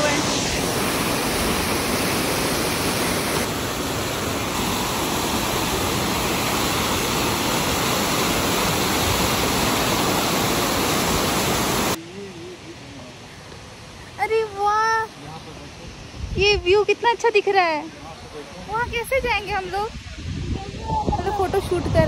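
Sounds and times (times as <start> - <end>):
waterfall rushing over rocks: 0.0 - 15.7.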